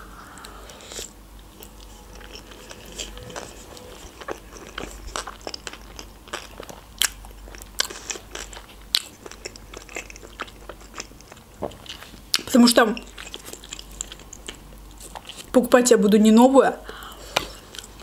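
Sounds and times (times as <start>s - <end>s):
mouth chewing wet crunches: 4.2s - 15.5s.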